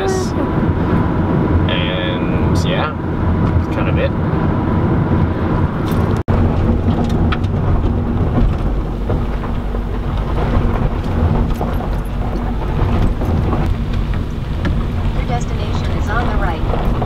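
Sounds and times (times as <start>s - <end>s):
tyres rumbling over gravel: 6.3s - 17.0s.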